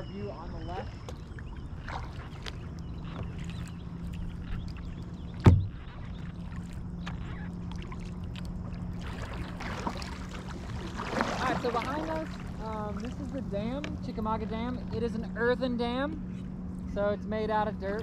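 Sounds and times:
low hum: 0.0s - 18.0s
water lapping at hull: 0.0s - 18.0s
paddle strokes: 0.7s - 15.1s
knock against boat: 5.4s - 5.9s.

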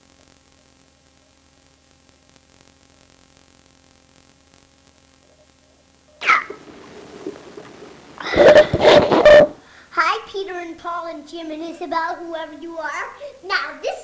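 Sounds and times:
steady hum: 0.0s - 14.0s
tape hiss: 0.0s - 14.0s
loud short noise: 8.2s - 9.6s.

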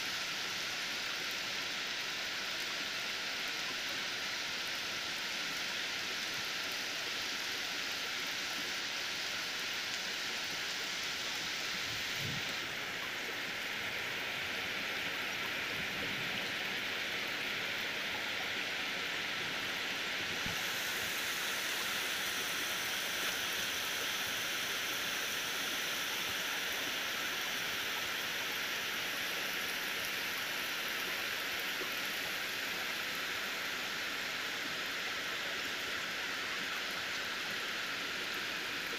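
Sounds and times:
rain on leaves: 0.0s - 38.9s.

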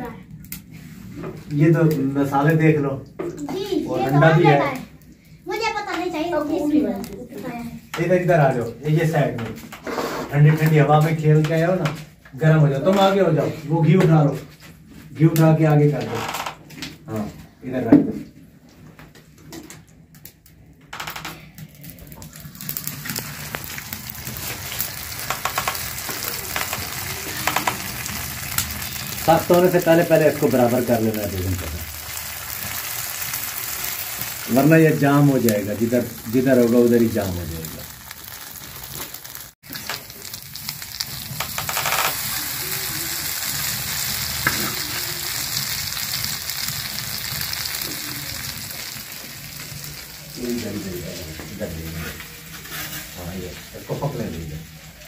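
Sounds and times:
omelette mixture sizzling on griddle: 21.6s - 55.0s.

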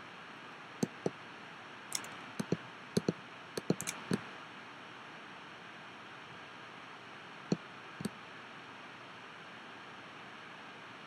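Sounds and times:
mouse button clicks: 0.8s - 1.1s, 1.9s - 4.3s.

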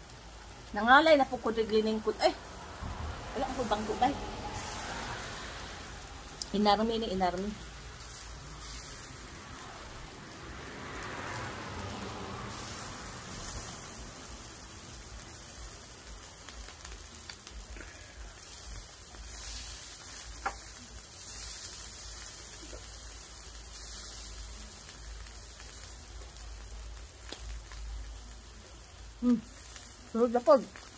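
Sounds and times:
skewers sizzling on grill: 0.0s - 30.9s.

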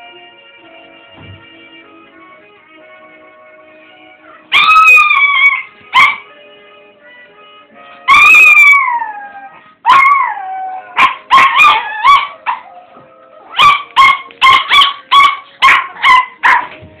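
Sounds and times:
tv music: 0.0s - 17.0s
dog howling: 8.1s - 13.9s
dog barking sharply: 13.6s - 16.7s.

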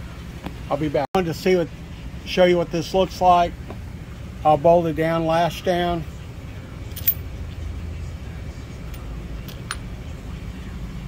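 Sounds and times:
steady low hum: 0.0s - 11.0s
wrench clinking on steel table: 6.9s - 7.3s, 8.9s - 9.9s.

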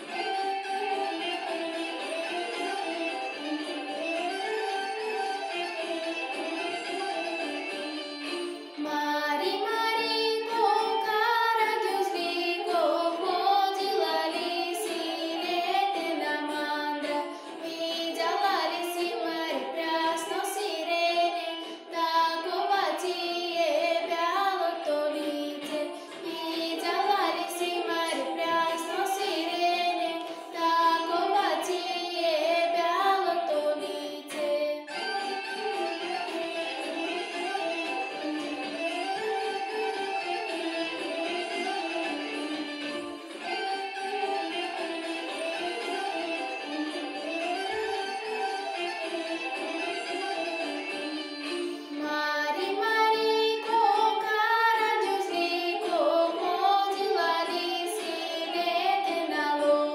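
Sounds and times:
instrumental accompaniment: 0.0s - 59.9s
girl singing folk song: 7.9s - 35.3s, 51.7s - 59.9s.

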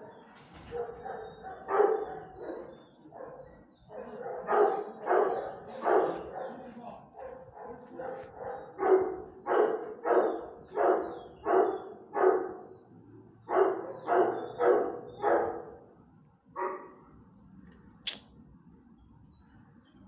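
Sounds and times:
dog barking: 0.0s - 12.8s, 13.4s - 15.9s, 16.6s - 17.1s.

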